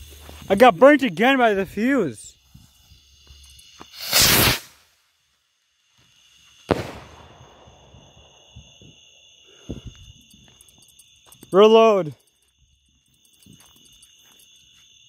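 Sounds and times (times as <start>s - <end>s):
firework rocket hissing: 0.0s - 5.0s, 6.5s - 8.2s
firework bang: 3.9s - 4.8s, 6.7s - 8.7s.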